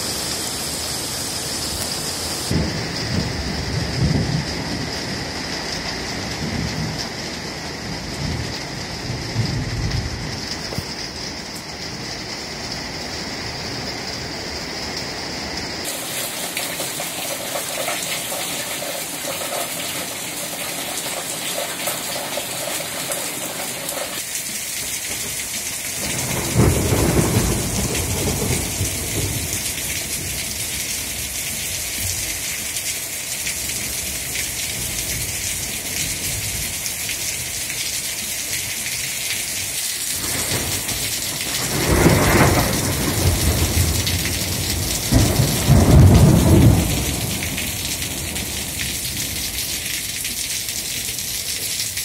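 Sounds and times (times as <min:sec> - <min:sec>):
heavy rain pouring: 0:00.0 - 0:52.0
thunder rumbling: 0:02.4 - 0:11.2, 0:25.1 - 0:31.3, 0:40.2 - 0:50.2.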